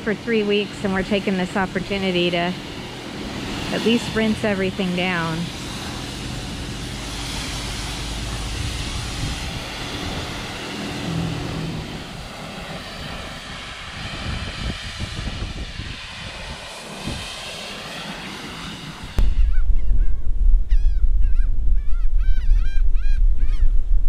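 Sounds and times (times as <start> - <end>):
pressure washer spraying water: 0.0 - 19.2.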